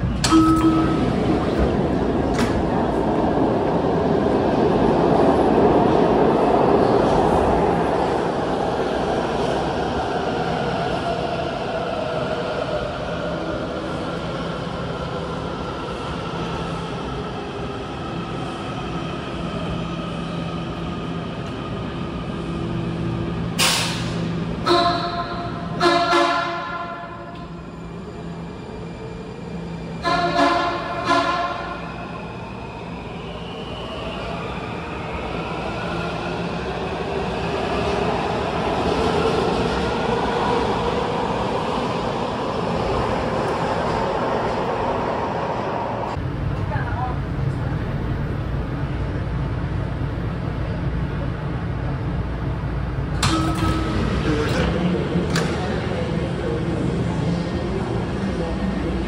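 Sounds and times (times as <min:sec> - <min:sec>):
train rolling rumble: 0:00.0 - 0:59.0.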